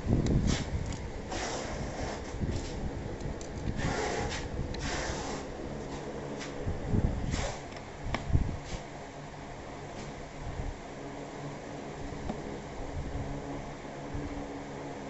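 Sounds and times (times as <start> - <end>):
rustling and scraping of chair parts: 0.3 - 6.6, 7.2 - 7.8, 8.6 - 8.9.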